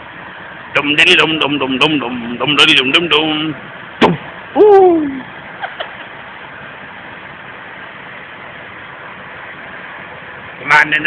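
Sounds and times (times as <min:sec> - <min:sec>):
steady background noise: 0:00.0 - 0:11.0
voice sliding down in pitch: 0:04.6 - 0:05.3.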